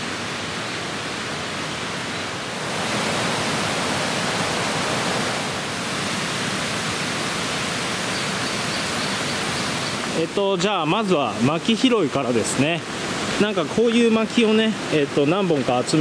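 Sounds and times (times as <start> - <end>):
mountain river rushing over rocks: 0.0 - 16.0.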